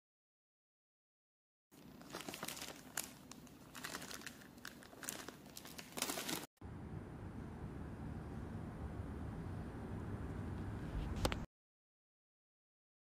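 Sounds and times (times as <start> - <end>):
plastic bag crinkling: 1.8 - 6.5.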